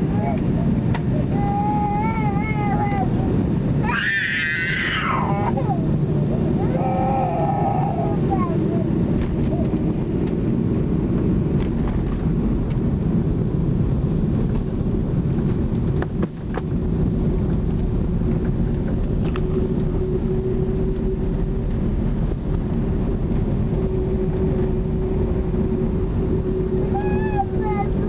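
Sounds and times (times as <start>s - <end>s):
airliner engines and wheels rumbling: 0.0s - 28.0s
steady hum: 0.0s - 28.0s.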